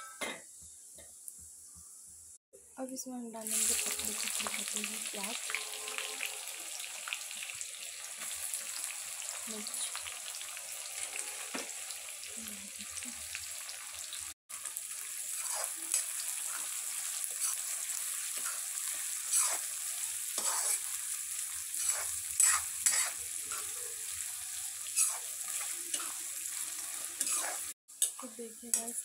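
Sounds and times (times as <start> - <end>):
onions sizzling in hot oil: 3.4 - 29.0
ladle scraping a pan: 19.2 - 19.6, 20.4 - 20.9, 27.2 - 27.6.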